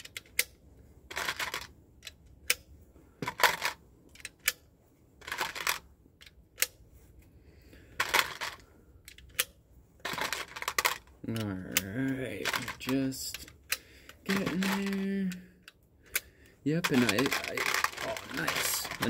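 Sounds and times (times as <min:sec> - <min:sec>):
brass cartridges rattling: 0:01.1 - 0:01.7, 0:10.0 - 0:15.3, 0:16.1 - 0:19.0.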